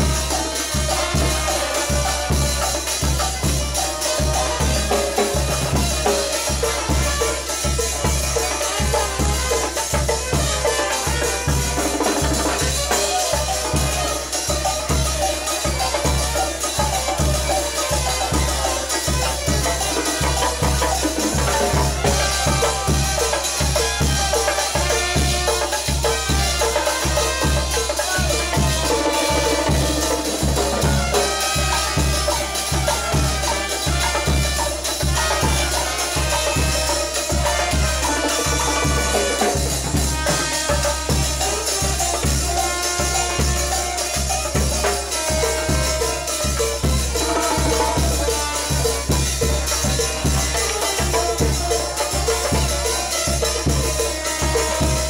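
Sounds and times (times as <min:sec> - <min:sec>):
band playing dance music: 0:00.0 - 0:55.0.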